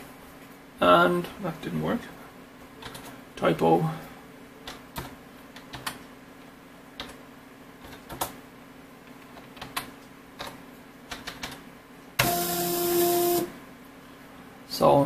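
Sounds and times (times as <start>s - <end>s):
faint steady hum: 0.0s - 15.0s
computer keyboard clicks: 2.8s - 3.1s, 4.7s - 6.0s, 7.8s - 8.4s, 9.2s - 11.6s.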